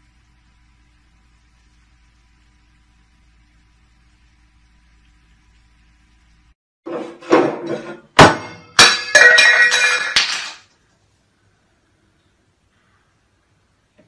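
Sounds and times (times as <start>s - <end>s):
clattering knocks and rattle: 6.9s - 10.7s.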